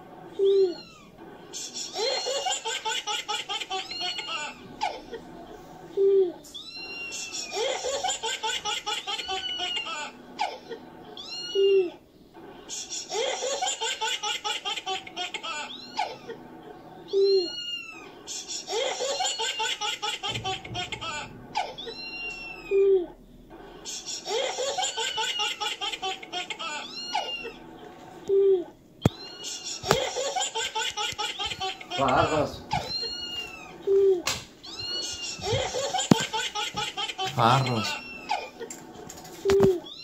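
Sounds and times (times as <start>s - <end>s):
looped laughter sound effect: 1.4s - 5.3s, 11.6s - 16.4s, 23.8s - 27.5s.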